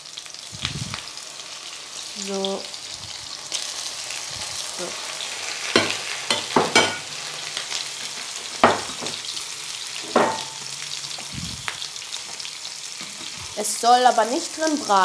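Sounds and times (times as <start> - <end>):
pasta sizzling in butter: 0.0 - 15.0
spatula clinking on pan: 5.8 - 7.0.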